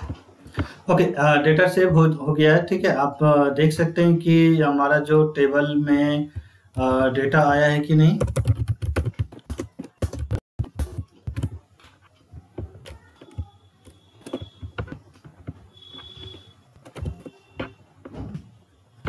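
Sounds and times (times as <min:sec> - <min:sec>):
computer keyboard typing: 0:06.8 - 0:17.8
faint high tone: 0:12.3 - 0:15.0.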